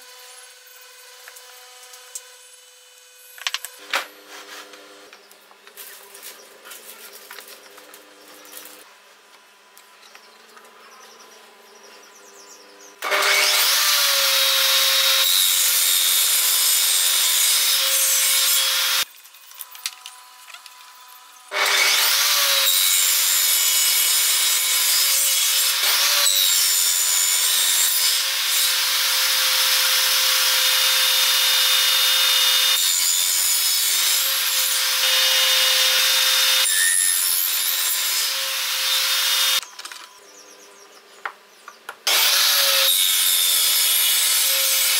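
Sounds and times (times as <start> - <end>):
table saw cutting wood: 0.0 - 5.2, 13.0 - 19.1, 21.4 - 39.6, 42.1 - 44.9.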